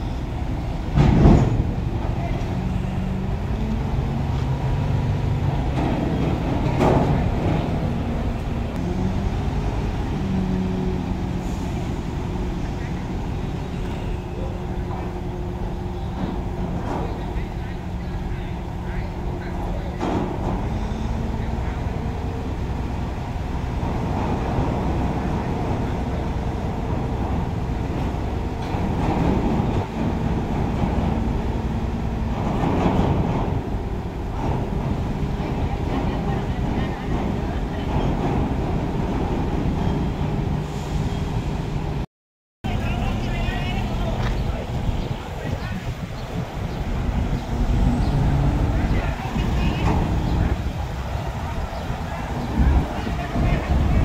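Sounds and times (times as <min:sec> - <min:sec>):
diesel engine rumbling: 0:00.0 - 0:54.0
rush of noise: 0:42.7 - 0:54.0.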